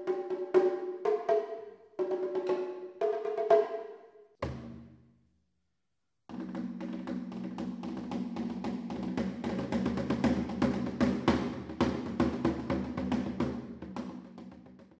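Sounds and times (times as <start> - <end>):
quick repeated drum strikes: 6.4 - 14.8.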